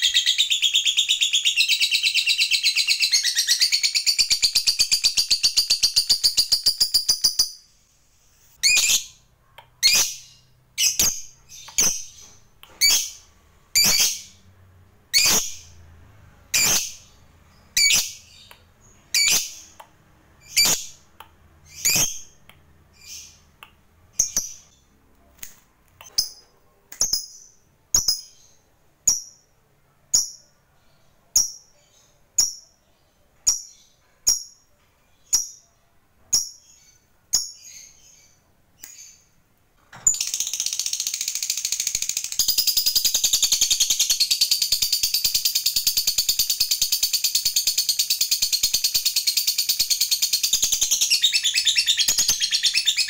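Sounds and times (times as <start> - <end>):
bird chirping: 0.0 - 53.0
bird fast chattering song: 40.1 - 53.0.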